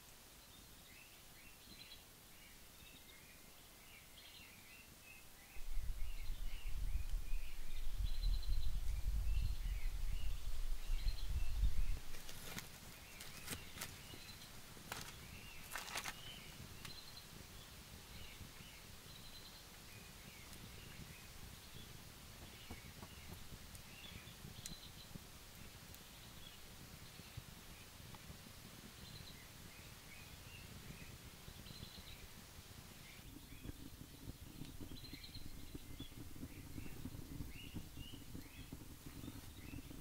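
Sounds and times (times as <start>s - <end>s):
forest birds chirping: 0.0s - 28.1s, 28.8s - 40.0s
loud low rumble: 5.6s - 12.1s
sticks snapping and knocking: 14.9s - 17.0s.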